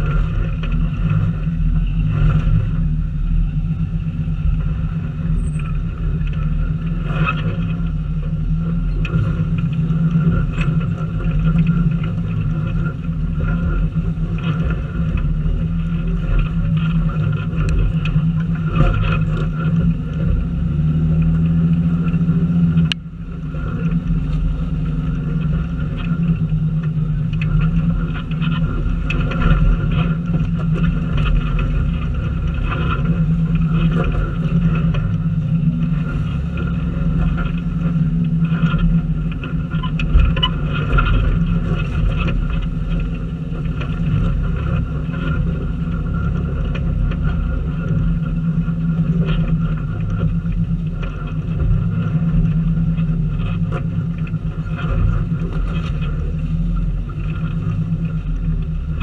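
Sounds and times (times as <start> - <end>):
car engine rumbling at low speed: 0.0 - 59.0.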